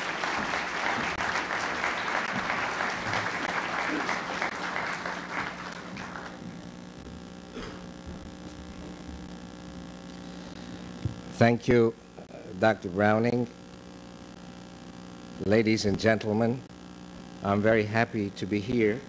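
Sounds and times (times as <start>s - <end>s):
audience applauding: 0.0s - 6.5s
steady mains hum: 0.0s - 19.0s.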